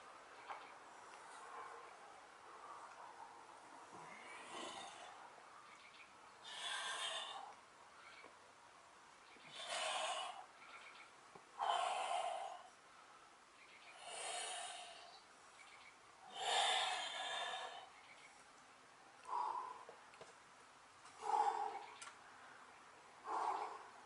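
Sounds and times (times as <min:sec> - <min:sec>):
heavy exhalations: 0:02.5 - 0:05.3, 0:06.4 - 0:07.6, 0:09.4 - 0:10.6, 0:11.5 - 0:13.1, 0:16.2 - 0:18.0, 0:19.2 - 0:20.1, 0:21.1 - 0:22.0, 0:23.2 - 0:24.0.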